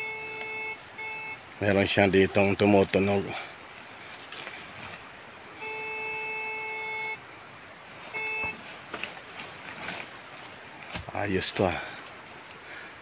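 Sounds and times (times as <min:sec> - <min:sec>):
metal detector beeping: 0:00.0 - 0:02.8, 0:05.6 - 0:07.2, 0:08.0 - 0:09.0.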